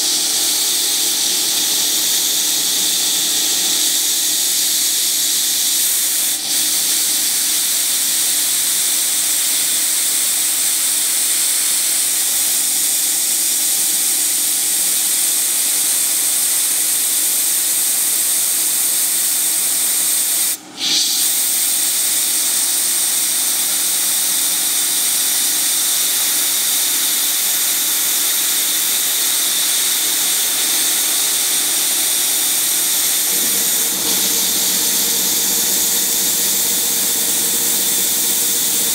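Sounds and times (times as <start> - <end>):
milling machine hiss and whine: 0.0 - 38.9.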